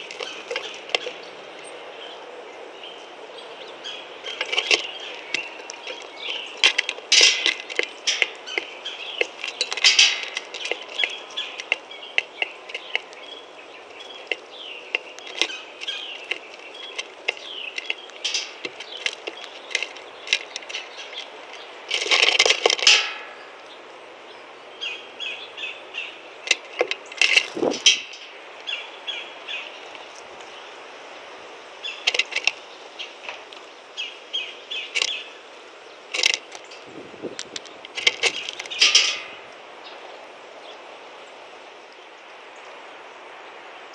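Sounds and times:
beaks tapping seeds and shells: 0.0s - 1.3s, 4.3s - 23.3s, 31.9s - 33.7s, 34.8s - 35.2s, 36.1s - 39.3s.

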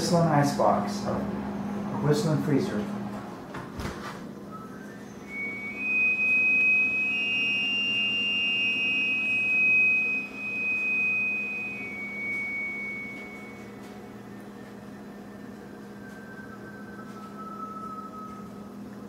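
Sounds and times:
low steady hum: 0.0s - 19.0s
fainter higher tone: 4.5s - 19.0s
freezer high whistle: 4.5s - 19.0s.

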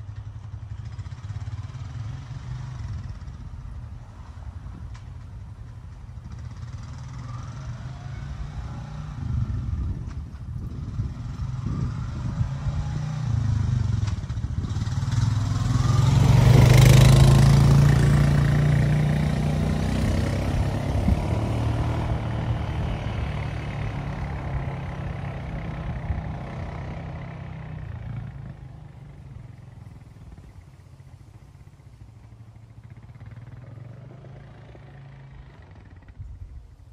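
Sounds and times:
quad bike engine passing by: 0.0s - 36.9s.

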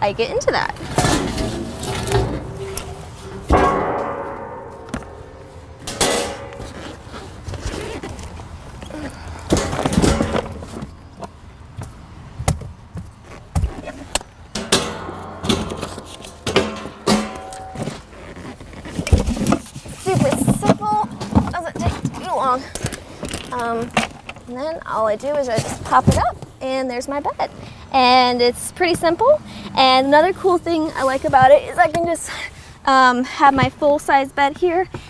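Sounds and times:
rustling: 0.8s - 11.3s.

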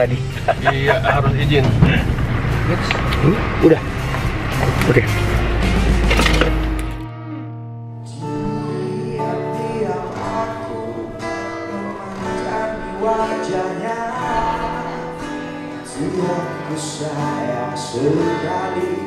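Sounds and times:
vehicle rumble: 0.0s - 7.1s, 9.7s - 16.4s
acoustic guitar: 0.0s - 19.0s
man singing into a microphone: 8.1s - 15.2s, 15.8s - 19.0s.

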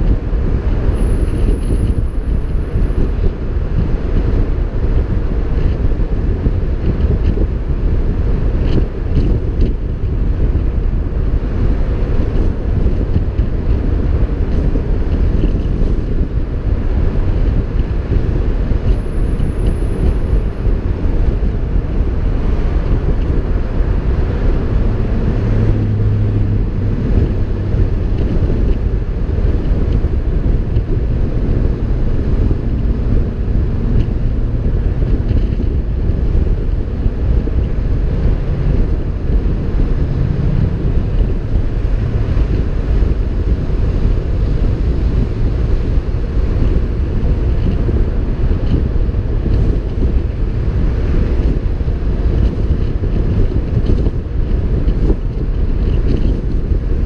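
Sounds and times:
road and tyre noise: 0.0s - 57.0s
wind buffeting microphone: 0.0s - 57.0s.

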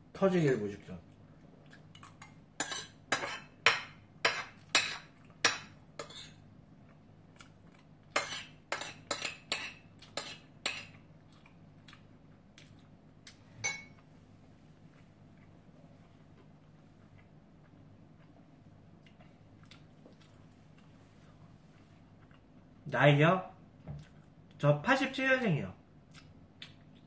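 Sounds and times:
metal spoon clinking on ceramic plate: 13.6s - 14.0s.

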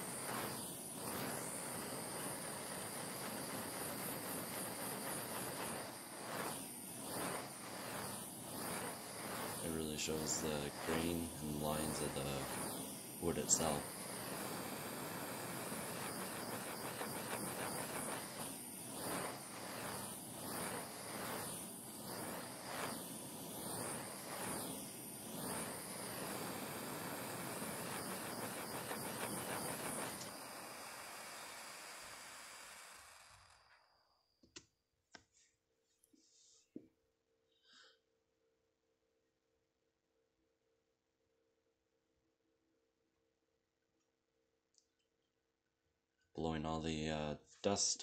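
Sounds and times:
handheld tool rushing hiss: 0.0s - 34.6s.

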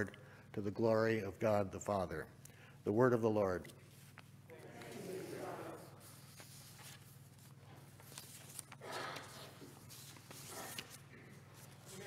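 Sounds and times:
low electrical hum: 0.0s - 12.0s
paper rustling: 3.9s - 12.0s.

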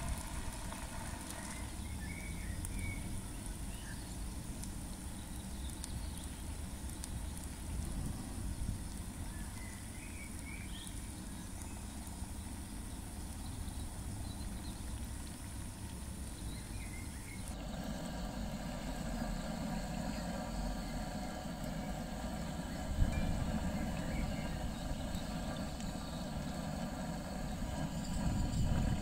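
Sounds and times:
low steady rumble: 0.0s - 29.0s
oil bubbling and sizzling: 0.0s - 29.0s.

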